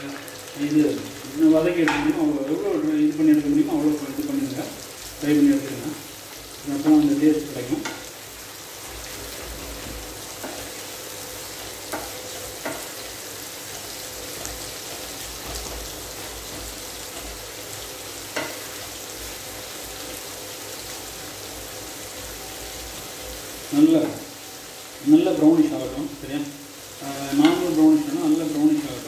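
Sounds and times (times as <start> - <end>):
onions sizzling in hot oil: 0.0 - 29.0
wooden spatula knocking on pan: 1.8 - 2.2, 9.3 - 10.8, 11.8 - 13.0, 14.3 - 17.4, 18.3 - 18.7, 27.3 - 27.8.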